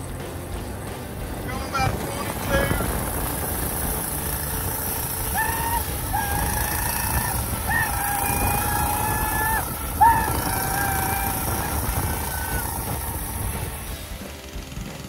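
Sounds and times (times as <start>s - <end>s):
mini bike engine running: 0.0s - 15.0s
wind and road noise: 0.0s - 15.0s.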